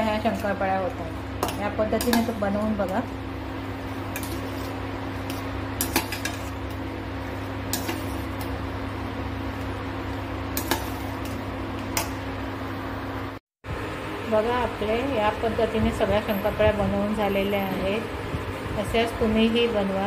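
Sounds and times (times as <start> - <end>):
sizzle of frying: 0.0 - 15.3.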